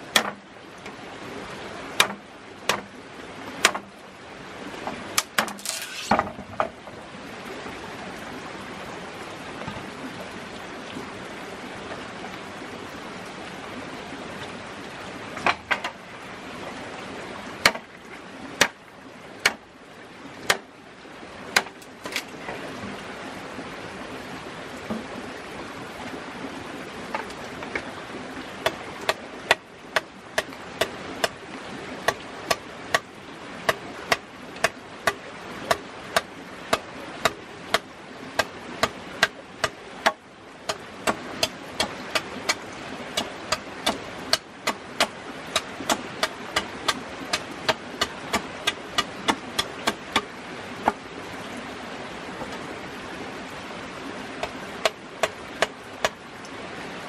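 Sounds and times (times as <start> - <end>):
bush knife chopping bamboo: 0.1 - 0.4, 2.0 - 2.9, 3.6 - 3.9, 5.2 - 6.3, 17.6 - 17.8, 20.5 - 20.7, 21.5 - 22.3, 28.6 - 31.4, 32.0 - 33.1, 33.7 - 42.6, 43.2 - 51.0, 54.4 - 56.2.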